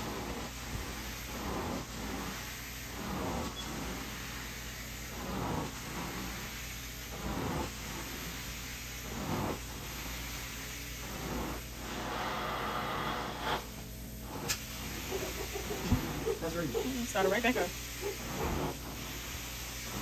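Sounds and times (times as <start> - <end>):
even hiss: 0.0 - 20.0.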